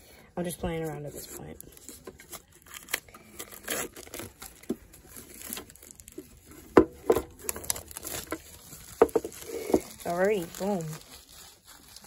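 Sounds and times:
plastic shrink wrap crinkling and tearing: 0:00.4 - 0:12.0.

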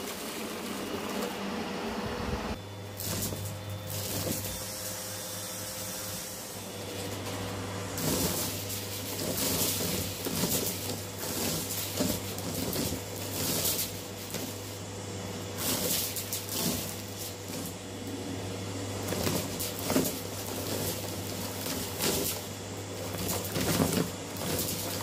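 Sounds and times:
vacuum cleaner motor hum: 0:00.0 - 0:25.0
debris rattling up vacuum wand: 0:03.0 - 0:04.6, 0:06.8 - 0:17.8, 0:19.0 - 0:25.0.

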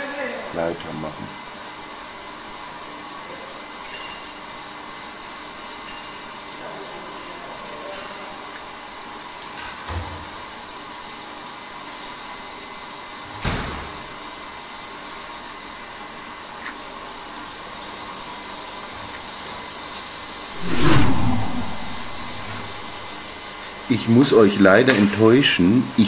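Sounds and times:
blower rushing noise: 0:20.6 - 0:23.4.

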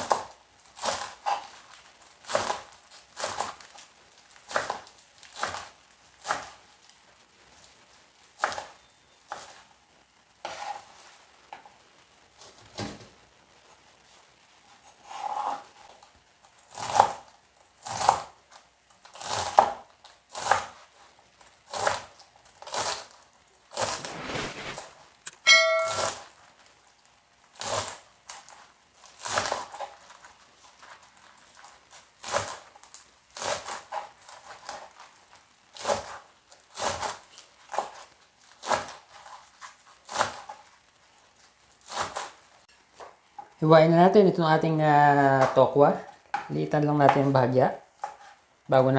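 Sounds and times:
knife chopping on cutting board: 0:02.3 - 0:03.6, 0:04.5 - 0:06.6, 0:19.2 - 0:20.7
short pitched ding: 0:25.3 - 0:26.2.

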